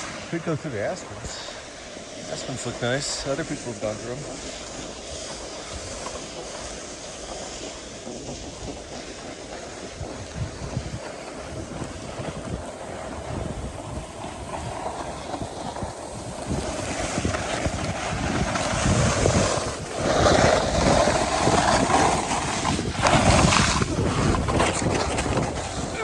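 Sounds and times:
skis scraping on snow: 0.0s - 26.0s
wind rumbling on microphone: 0.0s - 26.0s.

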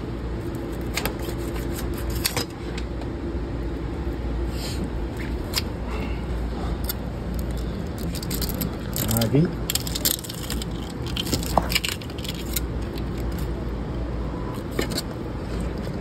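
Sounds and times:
steady low hum: 0.0s - 16.0s
knife scraping fish skin: 0.5s - 2.5s.

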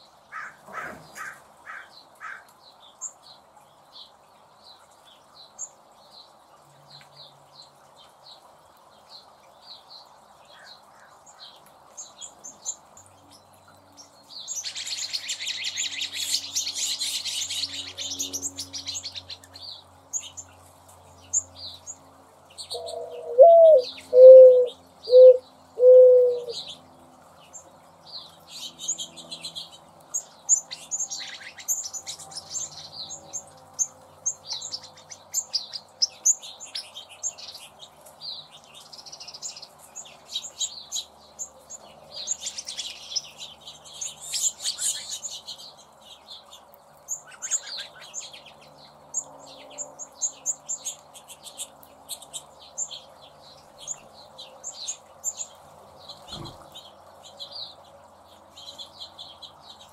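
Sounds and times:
sparrows chirping: 0.0s - 59.9s
mourning dove cooing: 22.7s - 26.6s.

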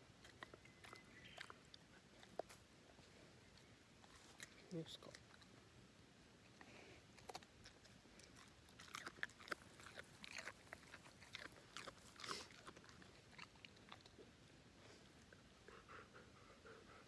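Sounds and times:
dog crunching carrot: 0.2s - 2.6s, 4.0s - 5.6s, 6.6s - 14.5s.

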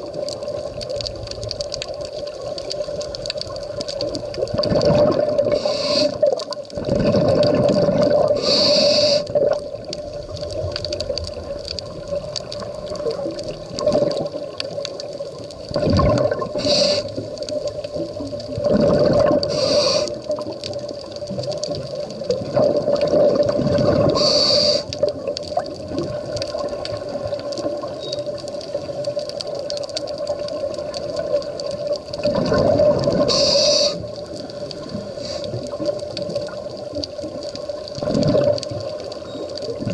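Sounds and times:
exhaled bubbles gurgling: 0.0s - 39.9s
regulator inhale hiss: 5.5s - 6.4s, 8.3s - 9.4s, 16.5s - 17.4s, 19.4s - 20.4s, 24.1s - 25.1s, 33.2s - 35.8s.

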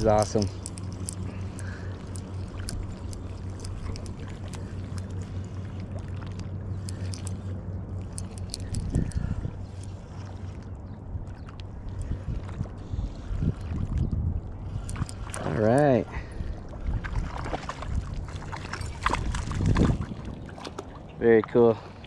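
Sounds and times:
low hum: 0.0s - 22.0s
fishing reel clicking: 8.0s - 9.2s.

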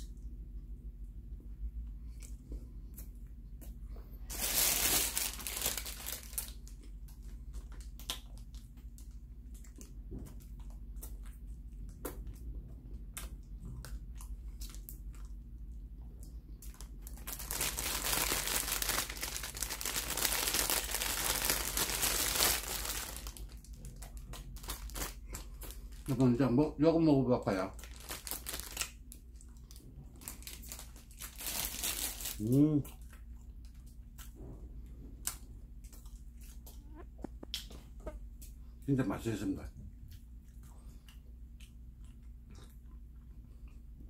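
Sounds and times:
plastic bag crinkling: 4.2s - 8.6s, 16.6s - 26.3s, 27.5s - 32.6s
chewing bread: 5.4s - 26.4s, 27.8s - 38.9s, 39.7s - 44.0s.

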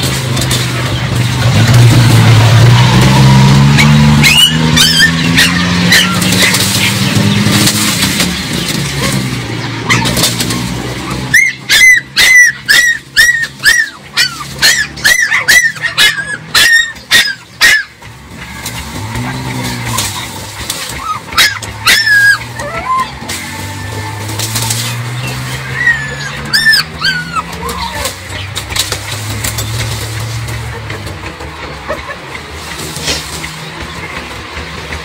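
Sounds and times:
puppy yelping: 3.7s - 7.1s, 9.0s - 18.0s, 19.8s - 24.2s, 24.8s - 28.4s
dry grass and brush rustling: 4.3s - 35.0s.

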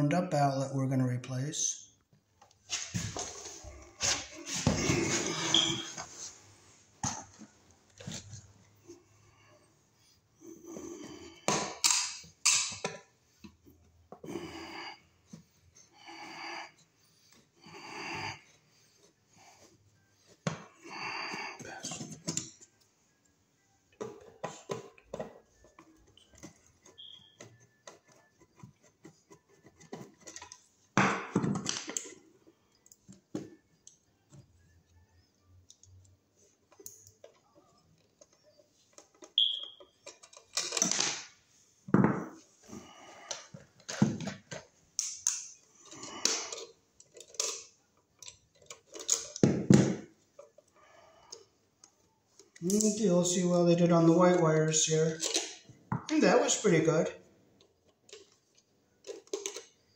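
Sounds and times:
brief high squeaks: 5.4s - 6.0s.

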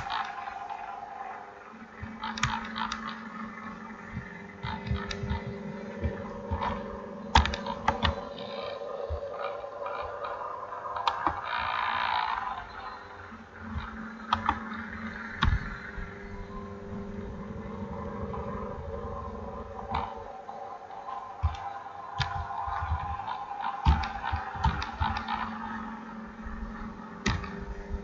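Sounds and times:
steady background hum: 0.0s - 28.0s.

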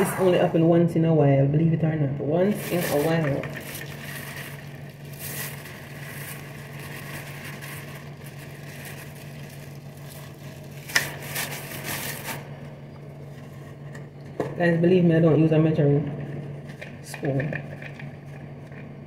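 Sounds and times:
steady low hum: 0.0s - 19.0s
plastic bag rustling: 2.5s - 12.6s.

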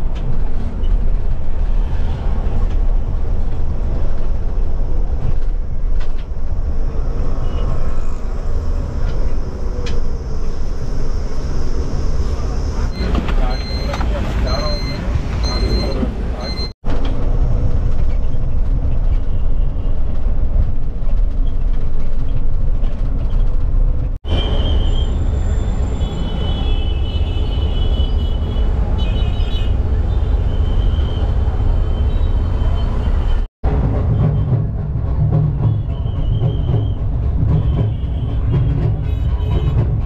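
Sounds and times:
bus cabin road rumble: 0.0s - 40.0s
street traffic: 0.0s - 40.0s
loud crowd street scene: 12.2s - 21.0s, 24.2s - 40.0s.

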